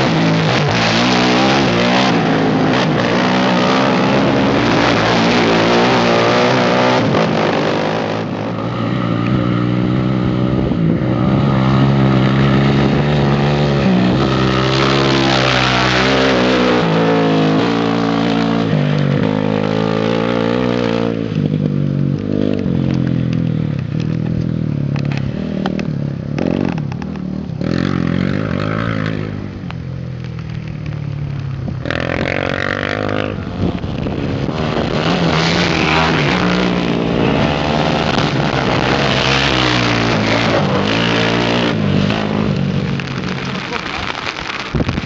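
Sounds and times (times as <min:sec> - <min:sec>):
quad engines revving: 0:00.0 - 0:21.7, 0:31.8 - 0:45.0.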